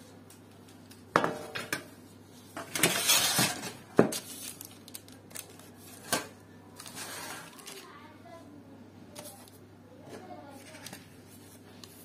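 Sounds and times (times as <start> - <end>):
crackling rustle: 2.3 - 8.2.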